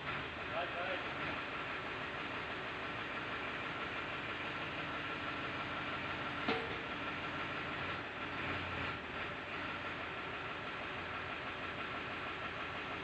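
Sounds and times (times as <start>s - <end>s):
tractor engine running: 0.0s - 13.0s
sharp knock: 6.5s - 6.9s.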